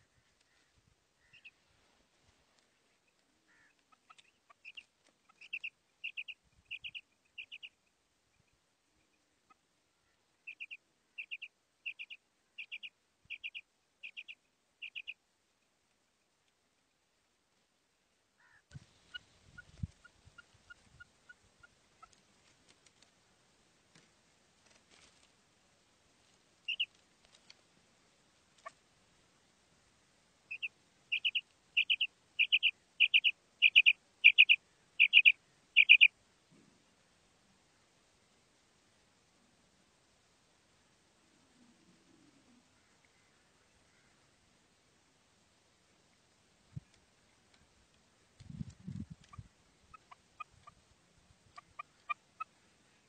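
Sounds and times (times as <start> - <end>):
quail calling: 0.0 - 1.6, 2.8 - 7.8, 9.5 - 15.2, 18.4 - 22.2, 26.7 - 26.9, 28.6 - 28.8, 30.5 - 36.2, 49.1 - 50.8, 51.4 - 53.0.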